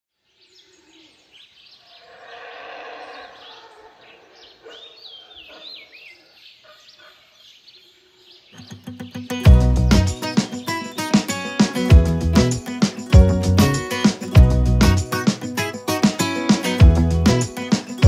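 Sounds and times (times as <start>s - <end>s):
birds chirping and whistling: 0.5s - 14.0s
low drawn-out bird call: 1.8s - 6.4s
falling whistled bird notes: 1.9s - 5.9s.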